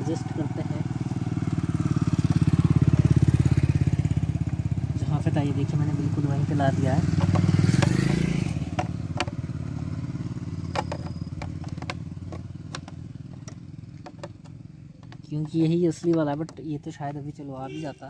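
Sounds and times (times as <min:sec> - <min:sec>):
motorcycle engine rumbling: 0:00.0 - 0:18.0
metal tool clicks on plastic visor: 0:10.7 - 0:15.2.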